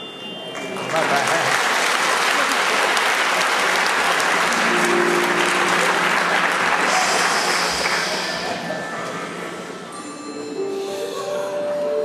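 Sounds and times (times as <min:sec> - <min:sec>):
music: 0:00.0 - 0:01.0, 0:04.4 - 0:12.0
audience applauding: 0:00.5 - 0:09.1
held low notes: 0:04.5 - 0:10.0.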